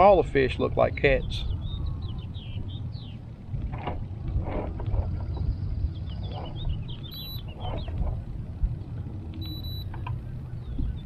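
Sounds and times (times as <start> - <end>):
steady low rumble: 0.0 - 11.0
small birds chirping: 0.8 - 3.5, 5.0 - 8.4
short electronic beeps: 7.1 - 7.5, 9.4 - 9.9.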